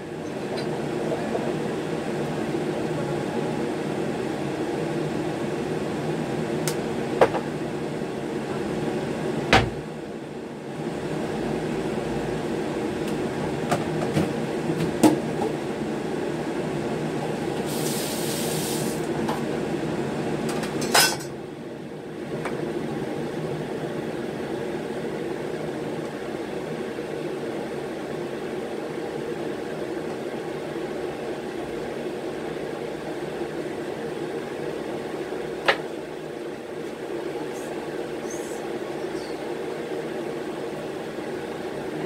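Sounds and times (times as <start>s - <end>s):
dishes and utensils clinking: 20.7s - 21.3s.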